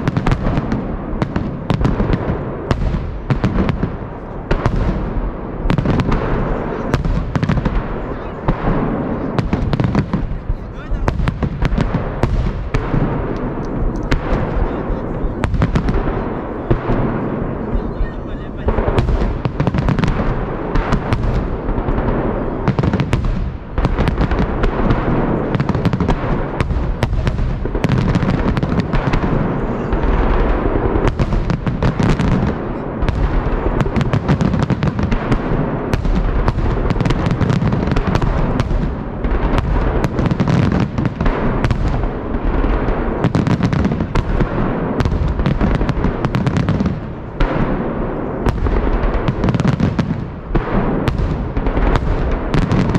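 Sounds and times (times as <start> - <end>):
fireworks bangs and crackles: 0.0 - 52.9.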